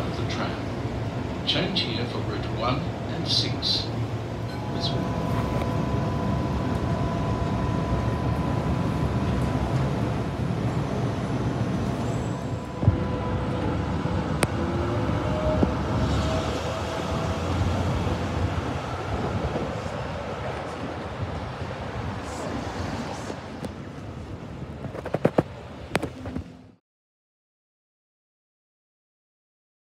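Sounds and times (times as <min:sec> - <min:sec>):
street noise: 0:00.0 - 0:26.8
tram rumbling: 0:00.0 - 0:26.8
faint whine tones: 0:03.3 - 0:14.7.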